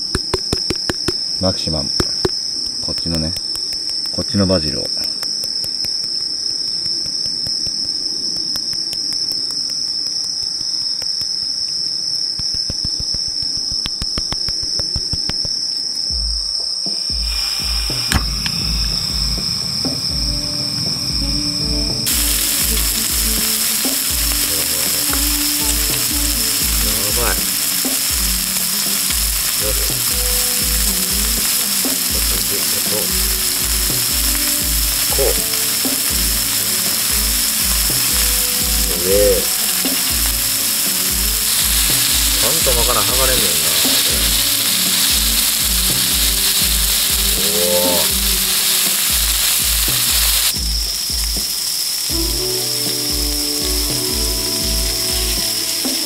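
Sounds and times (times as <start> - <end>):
food sizzling on a griddle: 0.0 - 56.0
tongs turning food: 1.9 - 11.6, 22.1 - 50.6
low pulsing beat: 12.4 - 56.0.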